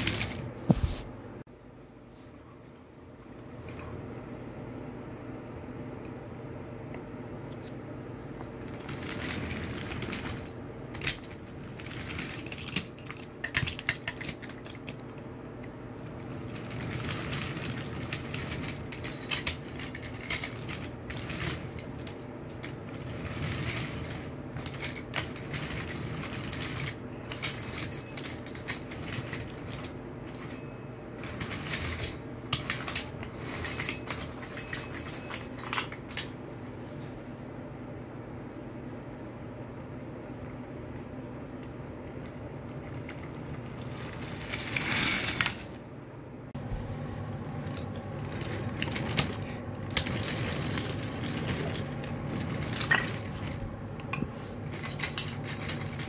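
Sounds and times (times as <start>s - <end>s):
wooden wheels rolling on track: 8.6s - 15.1s, 16.0s - 35.8s, 42.8s - 45.7s, 47.7s - 53.8s
wooden toy cars clicking: 8.6s - 36.3s, 47.7s - 56.0s.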